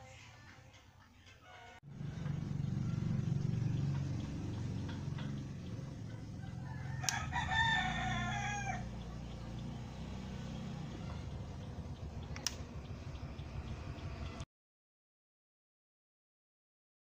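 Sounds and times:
rooster crowing: 1.4s - 4.0s, 5.9s - 9.4s
wall switch clicking: 12.3s - 12.6s.

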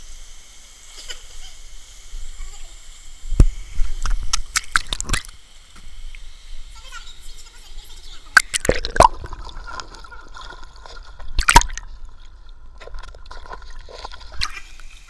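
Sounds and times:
water gurgling: 3.2s - 5.5s, 8.2s - 15.0s
water splashing and sloshing: 8.4s - 15.0s.

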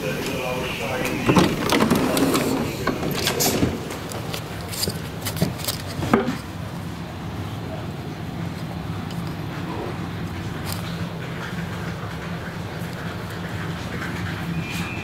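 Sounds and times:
footsteps: 0.0s - 6.5s
low hum inside train coach: 0.0s - 15.0s.

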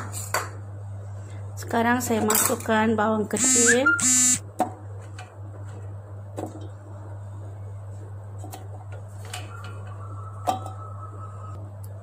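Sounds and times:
steady low hum: 2.8s - 12.0s.

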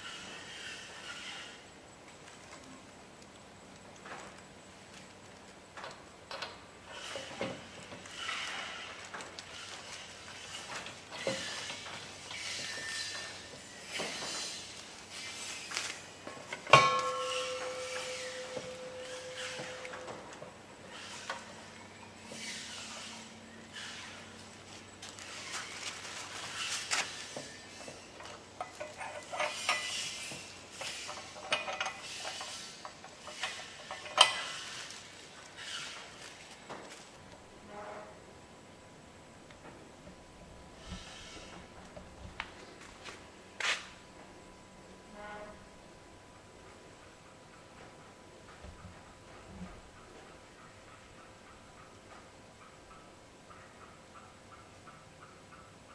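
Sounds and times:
metal scraping: 0.0s - 1.6s, 6.9s - 36.4s.

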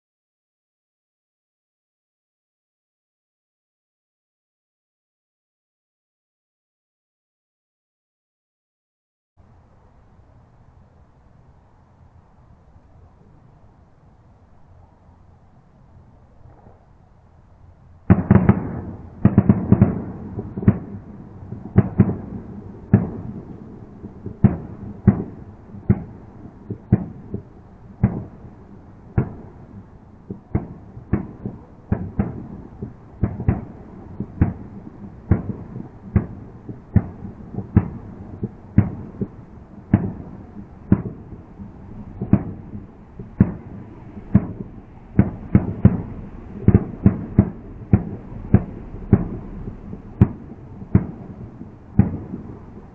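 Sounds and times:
fireworks bangs with echo: 18.1s - 28.5s, 29.1s - 52.9s.

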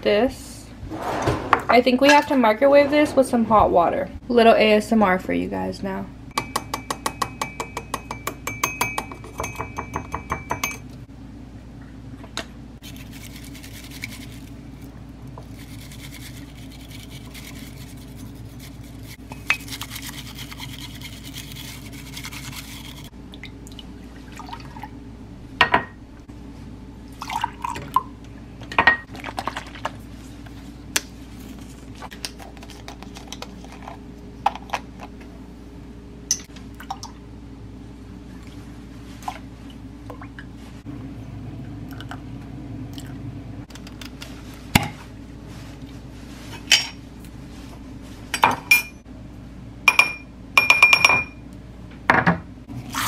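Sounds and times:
metal spoon tapping on wire sieve: 6.4s - 10.8s
bamboo whisk swishing in bowl: 12.8s - 14.6s, 15.4s - 23.1s, 45.5s - 46.7s.

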